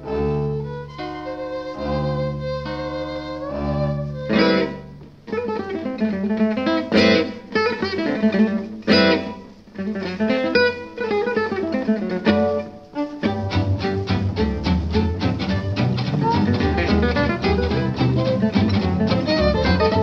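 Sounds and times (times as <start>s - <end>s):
plucked string instrumental music: 0.0s - 20.0s.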